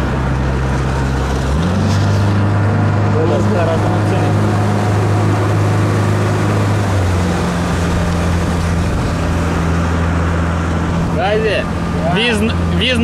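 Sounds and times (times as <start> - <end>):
motorboat engine droning: 0.0 - 13.0
water rushing: 0.0 - 13.0.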